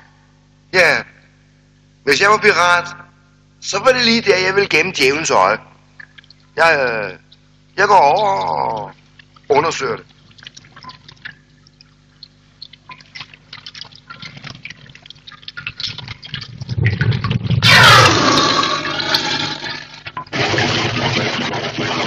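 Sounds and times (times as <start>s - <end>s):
water dripping: 5.9s - 20.3s.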